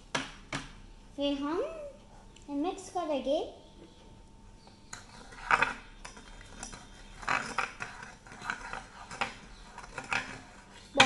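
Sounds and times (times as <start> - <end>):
metal spoon scraping a bowl: 4.9 - 11.0.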